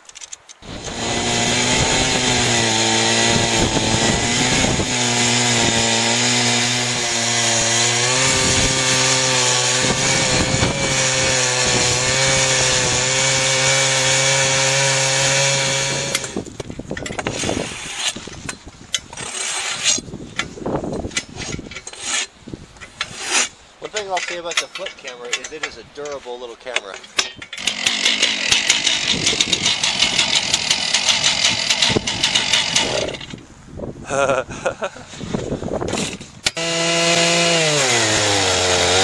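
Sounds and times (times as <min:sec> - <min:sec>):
chainsaw cutting log: 0:00.0 - 0:20.1, 0:27.4 - 0:33.4, 0:35.8 - 0:39.0.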